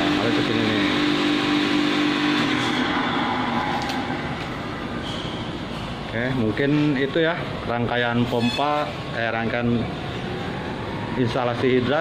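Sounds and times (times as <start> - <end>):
pump mechanical drone: 0.0 - 6.1.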